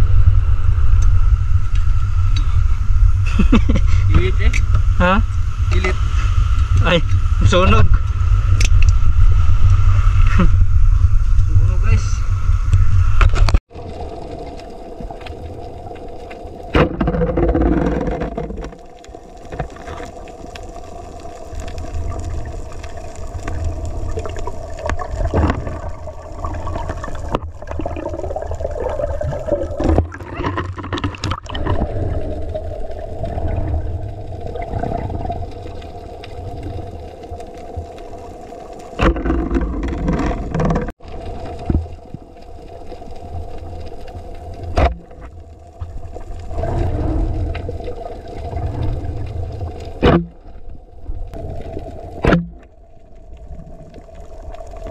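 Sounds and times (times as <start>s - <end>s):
underwater low rumble: 0.0s - 54.9s
water rushing: 13.7s - 54.9s.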